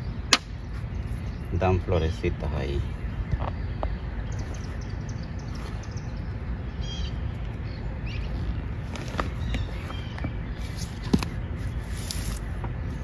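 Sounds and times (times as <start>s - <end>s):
faint bird chirps: 0.0s - 12.4s
low outdoor rumble: 0.0s - 13.0s.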